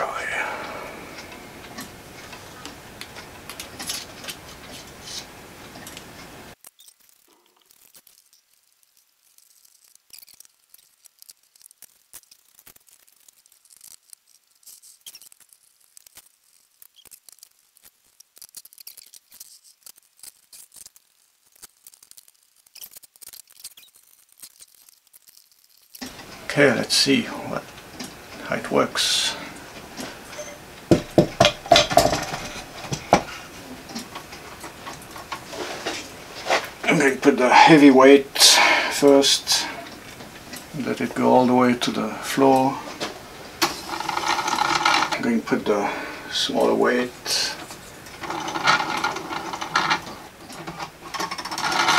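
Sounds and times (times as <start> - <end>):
steady hiss: 0.0 - 51.9
plastic gears and hardware clicking: 40.0 - 45.7, 47.4 - 51.9.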